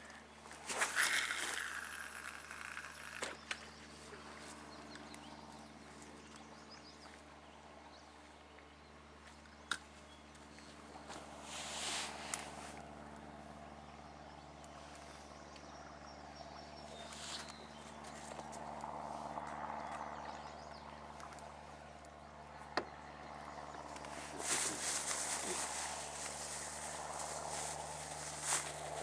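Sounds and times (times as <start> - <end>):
steady low hum: 0.0 - 29.0
fishing tackle clicks: 0.7 - 3.6
plastic bag rustling: 24.4 - 29.0.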